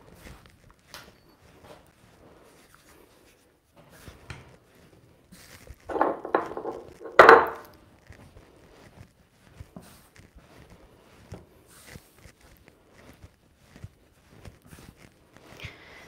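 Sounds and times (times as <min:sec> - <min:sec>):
hands kneading dough: 0:00.0 - 0:16.0.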